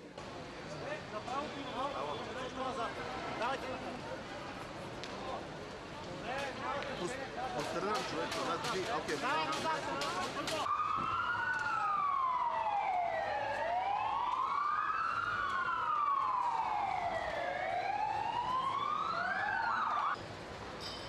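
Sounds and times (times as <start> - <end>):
emergency vehicle siren wailing: 10.6 - 20.2.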